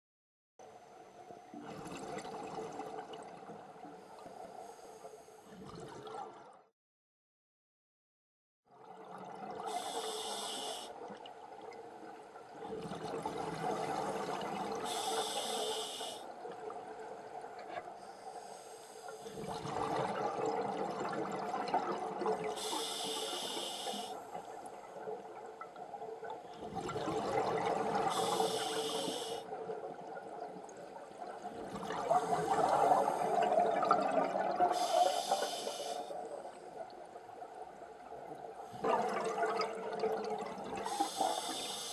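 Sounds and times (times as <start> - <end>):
exhaled bubbles burbling: 1.6 - 3.5, 5.5 - 6.6, 19.4 - 22.5, 26.6 - 28.3, 31.3 - 34.9, 38.7 - 41.0
diver breathing through regulator: 9.7 - 11.0, 14.9 - 16.2, 22.6 - 24.2, 28.0 - 29.5, 34.7 - 36.2, 40.8 - 41.9.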